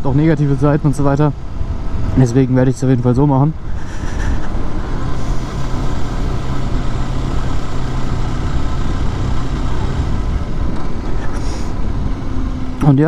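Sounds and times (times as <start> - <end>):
motorcycle engine running: 3.6 - 13.0.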